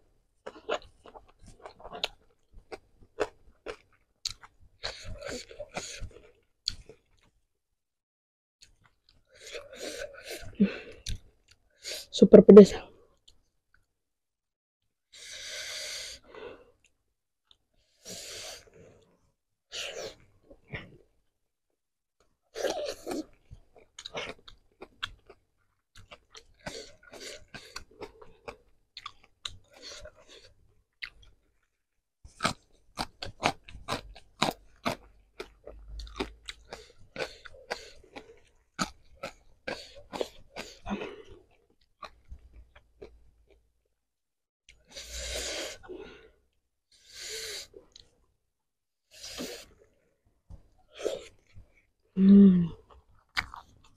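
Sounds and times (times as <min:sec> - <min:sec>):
chewing and crunching food: 0:00.4 - 0:07.4, 0:08.6 - 0:12.1, 0:22.5 - 0:43.8, 0:47.6 - 0:48.4, 0:49.1 - 0:52.1, 0:52.7 - 0:53.9
breathy sounds: 0:52.2 - 0:52.8.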